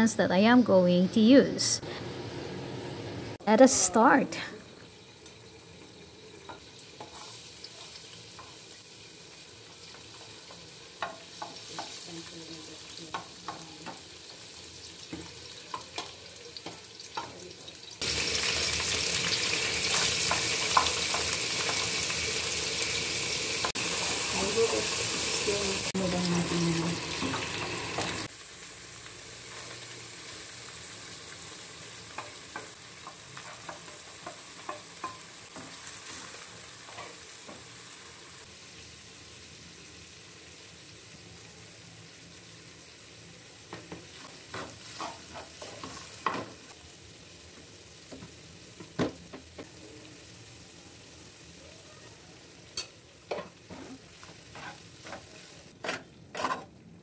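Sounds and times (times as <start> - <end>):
oil sizzling in a pan: 3.3 - 56.8
spatula scraping and tapping pan: 10.1 - 12.0, 19.9 - 21.9, 32.1 - 35.8, 43.7 - 46.6, 52.8 - 56.8.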